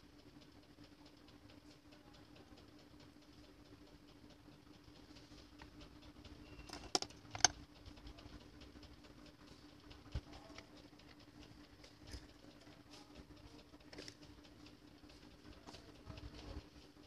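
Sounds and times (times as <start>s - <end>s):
faint steady hum: 0.0s - 17.0s
metal tweezers clicking: 6.6s - 7.6s.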